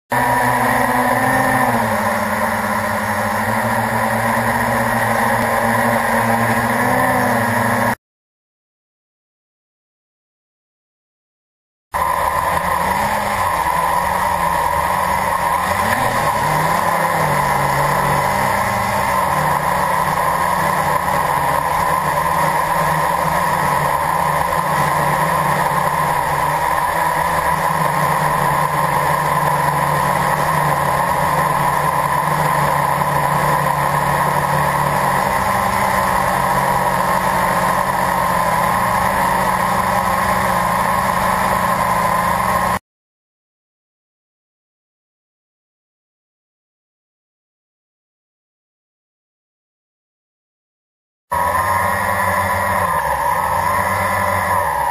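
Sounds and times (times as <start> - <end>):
quadcopter propellers droning: 0.1 - 8.0, 12.0 - 42.8, 51.3 - 54.9.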